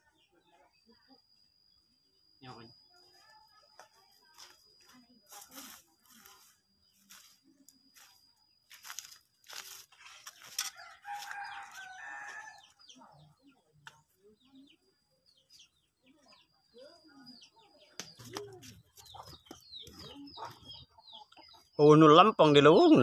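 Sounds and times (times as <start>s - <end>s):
scuffing and rustling: 3.9s - 12.5s
chickens clucking: 17.3s - 21.8s.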